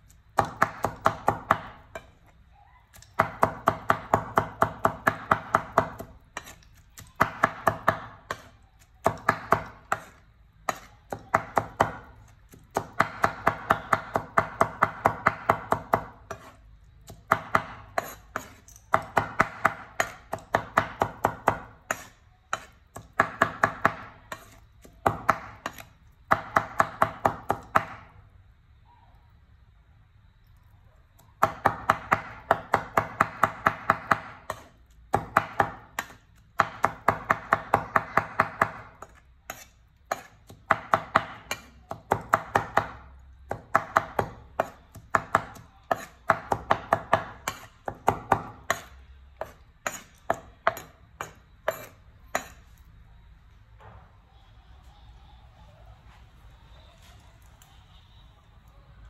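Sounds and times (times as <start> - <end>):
cleaver chopping on wooden board: 7.2 - 16.5, 17.1 - 28.0.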